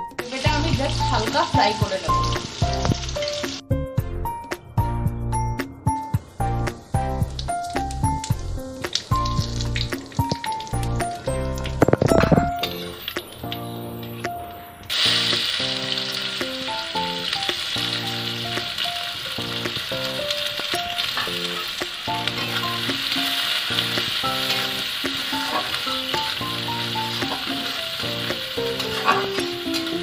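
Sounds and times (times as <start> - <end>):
onions sizzling in oil: 0.0 - 3.7, 6.5 - 30.0
background music: 0.0 - 30.0
spatula stirring in a wok: 21.0 - 26.3.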